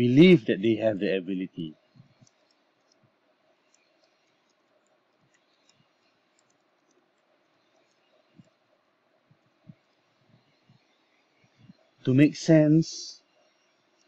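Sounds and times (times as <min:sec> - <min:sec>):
keyboard typing: 0:02.0 - 0:08.6.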